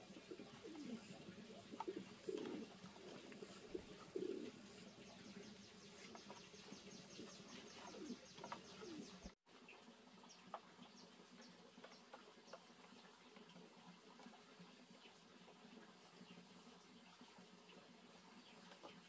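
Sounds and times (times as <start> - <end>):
dove cooing: 0.0 - 9.4.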